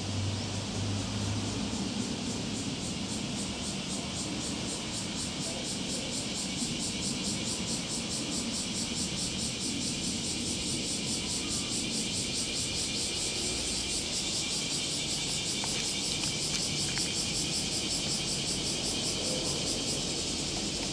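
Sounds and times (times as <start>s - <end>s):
cicadas singing: 0.0s - 20.9s.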